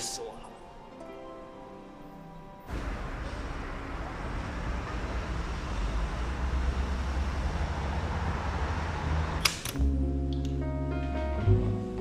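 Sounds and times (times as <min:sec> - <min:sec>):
passing vehicles rumble and hiss: 0:02.7 - 0:09.6.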